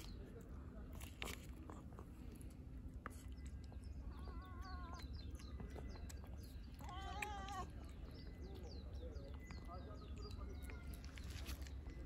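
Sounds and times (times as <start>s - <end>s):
cat lapping and chewing food: 0.0s - 12.0s
faint high bird chirps: 3.2s - 12.0s.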